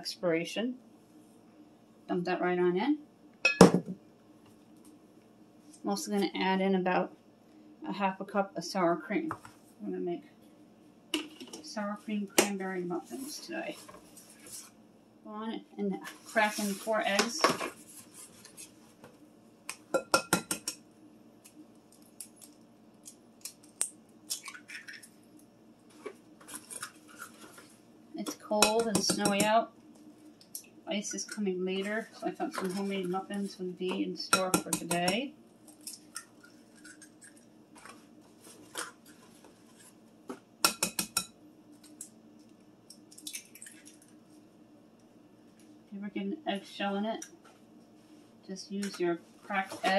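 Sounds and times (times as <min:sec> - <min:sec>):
egg cracking on glass bowl: 0:42.9 - 0:44.1.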